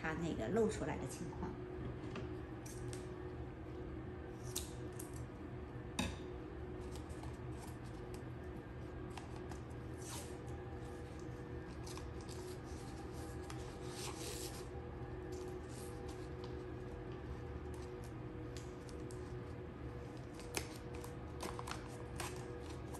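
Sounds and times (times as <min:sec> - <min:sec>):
paper and tape rustling: 0:11.6 - 0:14.7, 0:20.3 - 0:22.9.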